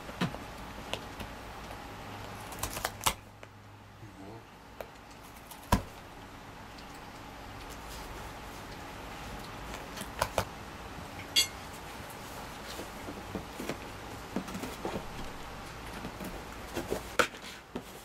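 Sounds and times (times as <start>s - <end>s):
cat gnawing cardboard box: 0.0s - 3.4s, 4.8s - 6.1s.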